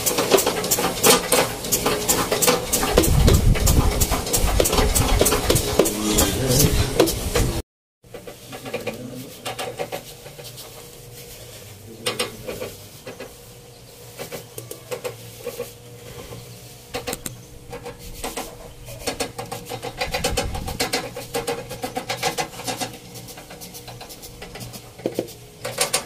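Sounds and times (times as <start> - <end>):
treadle sewing machine clicking: 0.0 - 5.9.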